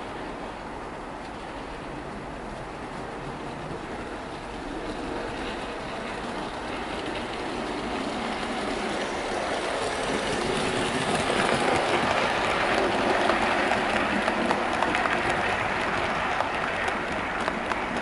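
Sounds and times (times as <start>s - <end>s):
model train rumbling on track: 0.0s - 18.0s.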